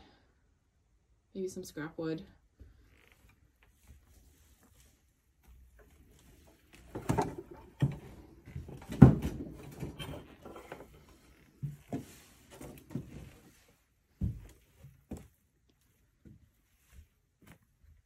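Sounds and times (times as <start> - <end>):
knocks and thumps on wood: 6.9 - 10.1
footsteps on wooden floorboards: 7.8 - 13.5, 14.1 - 15.4.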